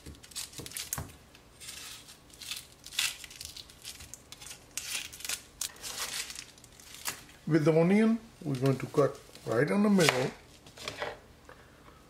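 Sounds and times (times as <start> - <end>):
onion skin crackling: 0.0 - 7.5.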